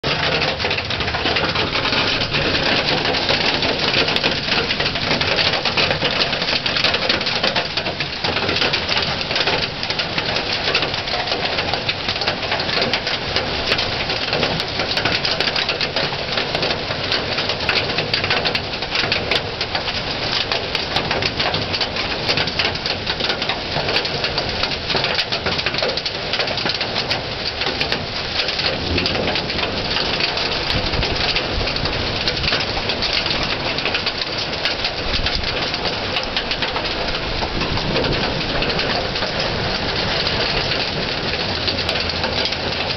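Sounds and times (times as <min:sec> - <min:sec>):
hail pattering: 0:00.0 - 0:42.9.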